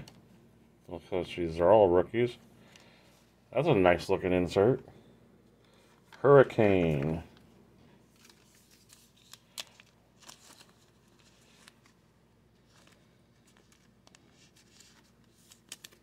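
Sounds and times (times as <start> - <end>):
trading cards being shuffled: 8.1 - 16.0.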